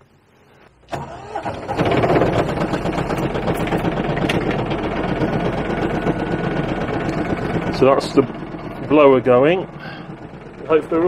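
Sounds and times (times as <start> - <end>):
heater blower fan rushing hum: 0.9 - 11.0.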